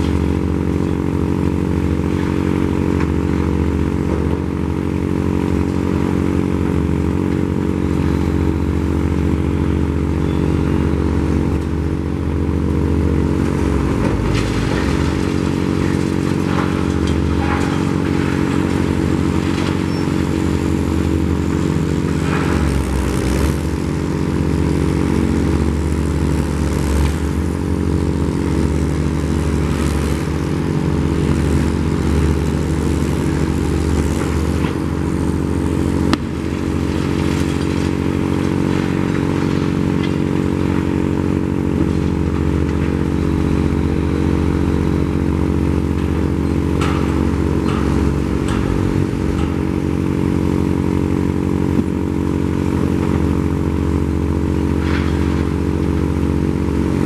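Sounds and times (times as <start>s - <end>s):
diesel crane engine running: 0.0s - 57.0s
clatter and scraping: 13.4s - 23.7s, 31.4s - 43.8s, 45.1s - 56.7s.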